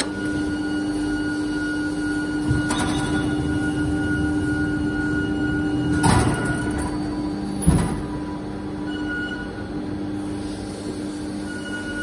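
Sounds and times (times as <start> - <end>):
machine humming: 0.0 - 10.2.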